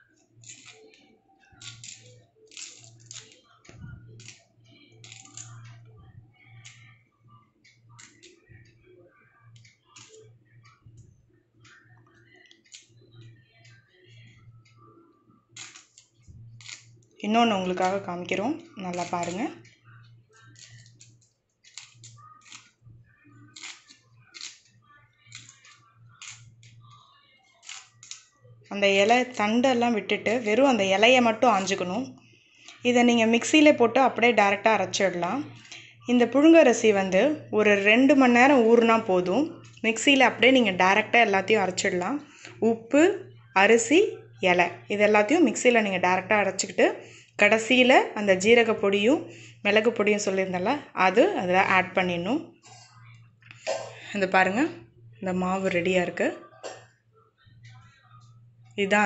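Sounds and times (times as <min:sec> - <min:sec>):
leaves snapping off stems: 0:01.6 - 0:03.4, 0:23.6 - 0:24.6, 0:27.6 - 0:28.2.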